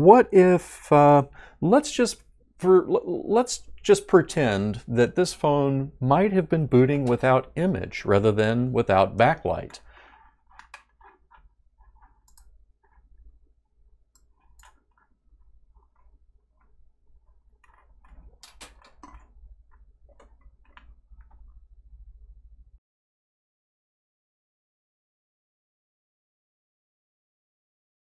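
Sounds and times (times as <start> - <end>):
faint clicks and handling noises: 9.5 - 22.3.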